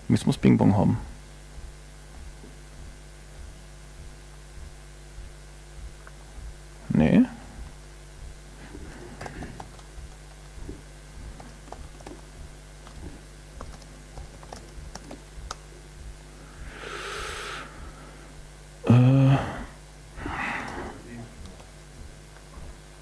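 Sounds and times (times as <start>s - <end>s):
hiss: 16.6s - 18.0s.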